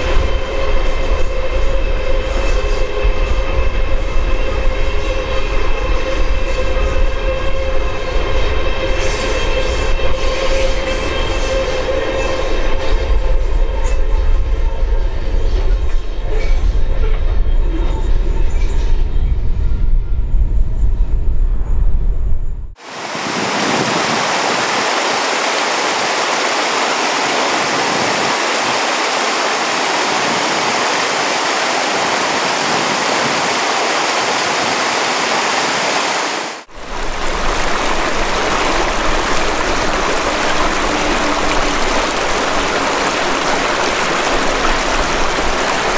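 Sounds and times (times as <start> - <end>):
stream running over stones: 22.8 - 45.9
waterfall rushing over rocks: 22.8 - 45.9.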